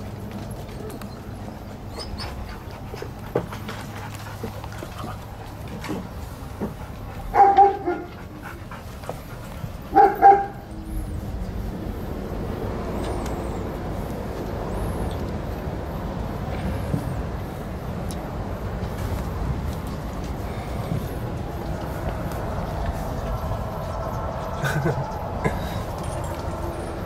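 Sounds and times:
dog barking: 7.3s - 8.1s, 9.9s - 10.7s
low rushing noise: 8.3s - 27.0s.

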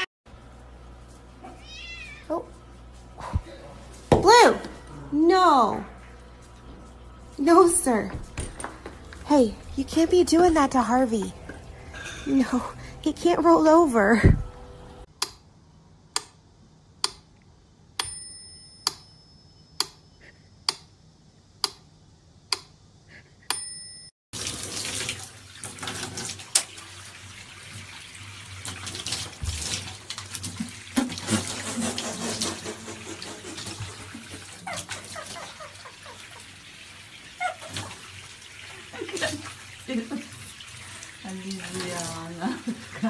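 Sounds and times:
sharp clicks with bell-like ring: 18.0s - 20.1s, 23.5s - 24.1s.

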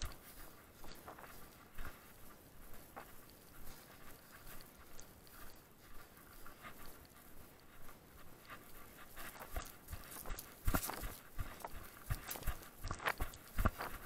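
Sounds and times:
runner panting: 0.0s - 14.0s
footfalls on grass: 9.3s - 14.0s.

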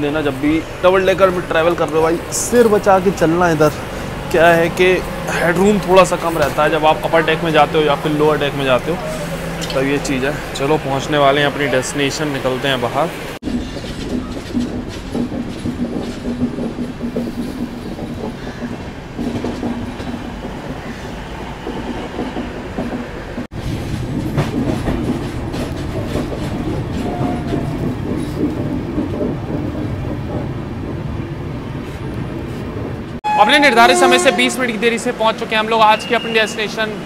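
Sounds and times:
train wheels clicking over rail joints: 0.0s - 11.8s, 13.4s - 33.2s
train running hum: 0.0s - 37.0s.

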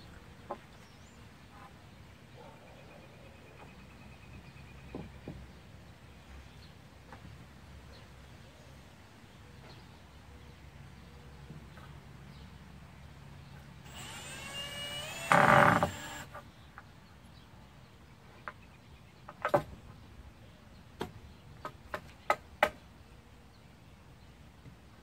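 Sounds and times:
power drill whining: 13.8s - 16.3s.

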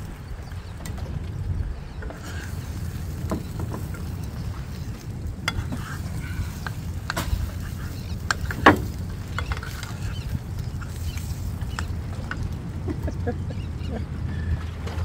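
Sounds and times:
utensils scraping a frying pan: 2.1s - 11.9s.

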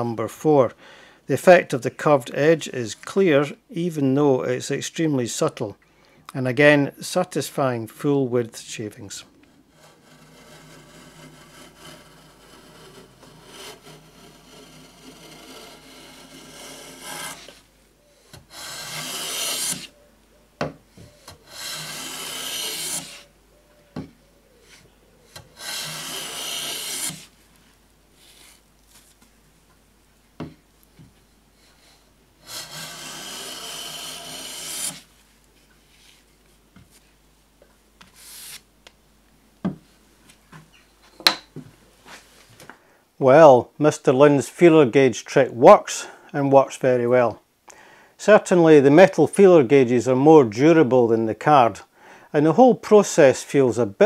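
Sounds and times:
hand plane hissing along wood: 9.7s - 17.6s, 18.2s - 20.0s, 20.9s - 23.3s, 25.4s - 27.3s, 28.2s - 28.6s, 31.5s - 35.1s, 38.1s - 38.6s.

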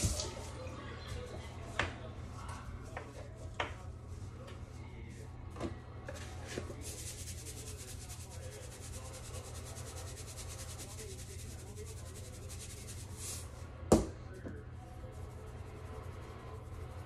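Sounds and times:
seasoning shaker rattling: 6.8s - 13.5s.

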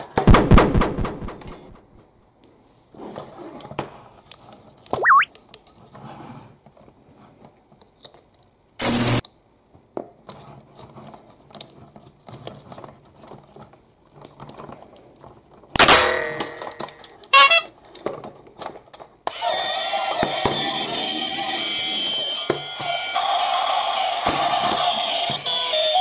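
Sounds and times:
toy sound effects: 5.0s - 5.3s, 17.4s - 17.7s
electronic horn honk: 17.4s - 17.7s
toy music: 17.4s - 17.7s, 19.3s - 26.0s.

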